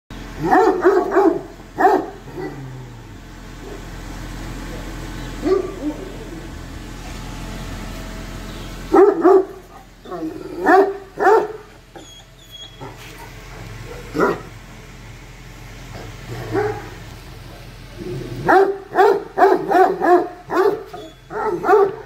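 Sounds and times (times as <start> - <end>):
dog barking deeply: 0.4 - 3.0, 4.8 - 6.6, 8.9 - 11.8, 12.8 - 14.6, 16.0 - 22.0.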